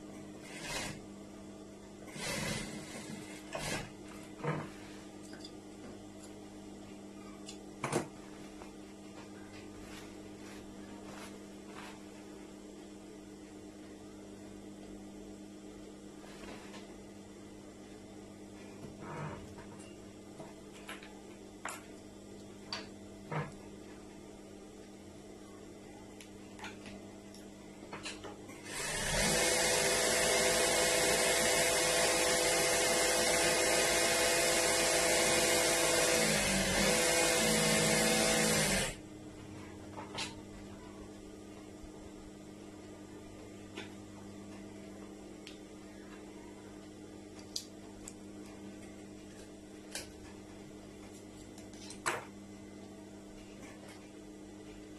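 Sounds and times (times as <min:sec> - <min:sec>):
faint steady hum: 0:00.0 - 0:54.9
motor-driven machine running: 0:28.6 - 0:39.0.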